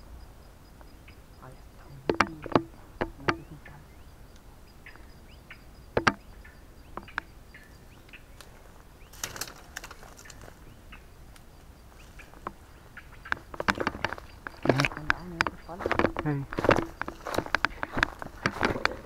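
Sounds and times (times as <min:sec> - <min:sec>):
bird chirps: 0:00.0 - 0:19.0
twigs snapping and rustling: 0:08.1 - 0:10.7, 0:13.2 - 0:19.0.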